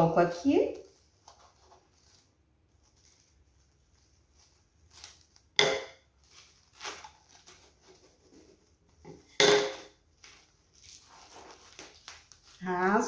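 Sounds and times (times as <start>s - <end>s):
cling film crinkling: 0.8s - 8.6s, 10.1s - 13.0s.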